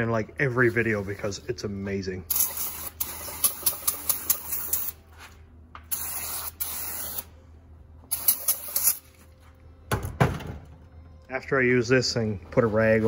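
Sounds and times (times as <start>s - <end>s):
aerosol can spraying: 2.3s - 5.0s, 5.9s - 7.3s, 8.1s - 9.1s.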